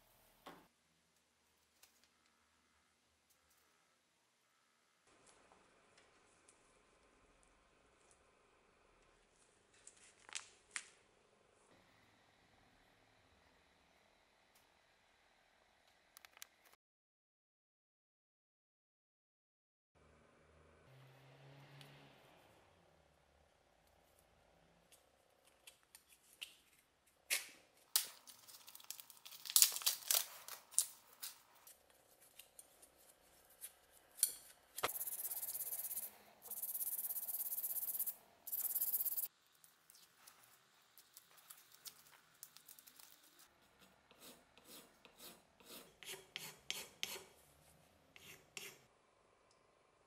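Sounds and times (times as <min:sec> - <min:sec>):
masking tape crackling and tearing: 0:27.9 - 0:33.6, 0:39.8 - 0:43.5
hand file strokes on metal: 0:43.6 - 0:47.4, 0:48.1 - 0:48.9
sandpaper rasping on steel: 0:43.8 - 0:47.4, 0:48.2 - 0:48.9.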